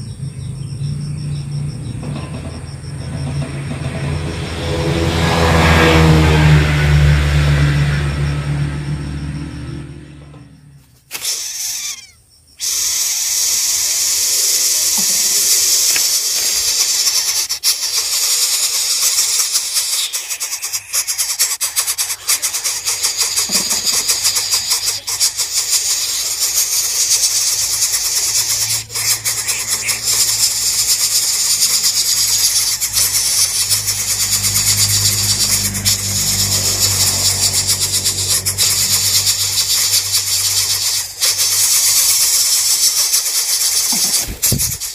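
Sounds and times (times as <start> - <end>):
chicks begging raspy hiss: 11.0 - 44.9.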